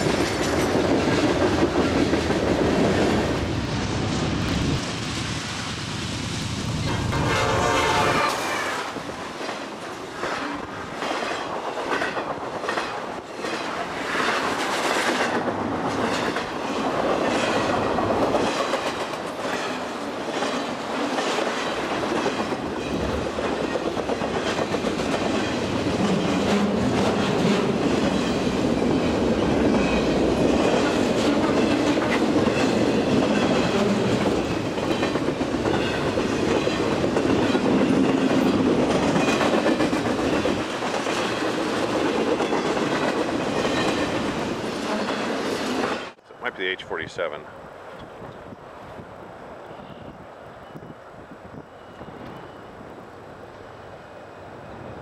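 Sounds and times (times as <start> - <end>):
wheels clacking over rail joints: 0.0 - 3.4, 9.2 - 46.2
train wheel and rail noise: 0.0 - 55.0.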